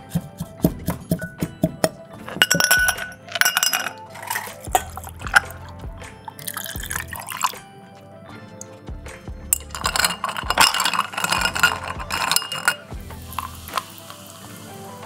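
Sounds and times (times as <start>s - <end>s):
background music: 0.0s - 15.0s
spoon clinking against glass: 2.3s - 5.6s, 6.3s - 7.6s, 9.5s - 13.8s
ice cubes clattering into glass: 2.4s - 5.6s, 9.6s - 13.8s
liquid pouring over ice: 2.6s - 5.7s, 6.3s - 7.6s, 9.6s - 14.5s.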